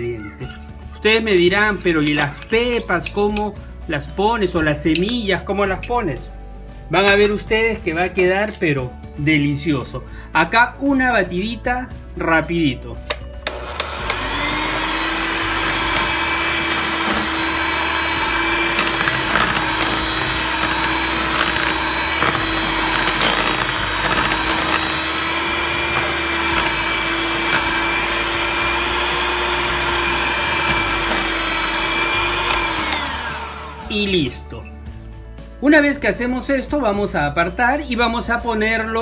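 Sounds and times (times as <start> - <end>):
electric hand mixer whipping batter: 13.4 - 34.2.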